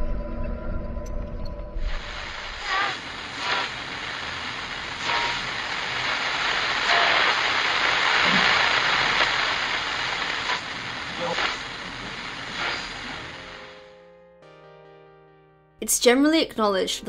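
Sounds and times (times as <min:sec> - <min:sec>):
tv static hiss: 0:01.8 - 0:14.0.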